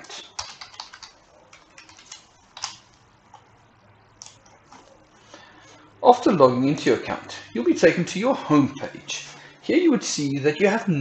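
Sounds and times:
keyboard keys clicking: 0.0 - 3.4.

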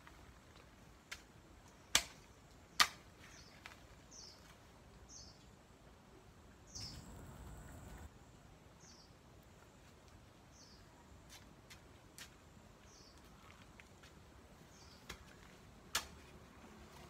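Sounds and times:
small bird chirping: 6.7 - 8.1.

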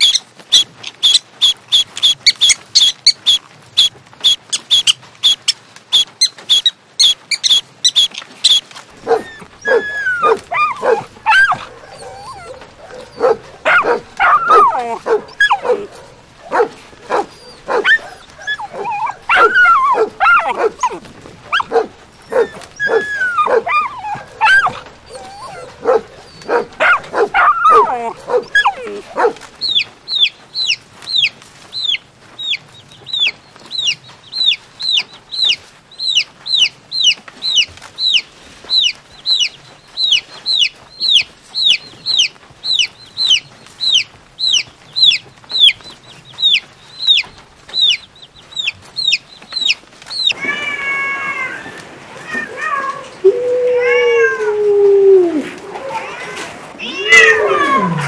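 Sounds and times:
baby chicks peeping: 0.0 - 50.6
dogs whining and barking: 6.0 - 29.9, 50.1 - 58.0.

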